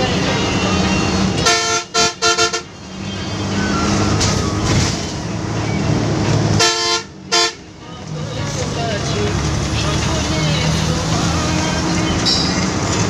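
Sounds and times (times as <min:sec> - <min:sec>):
bus engine running: 0:00.0 - 0:13.0
road noise: 0:00.0 - 0:13.0
bus horn toots: 0:00.4 - 0:03.5, 0:06.5 - 0:07.8.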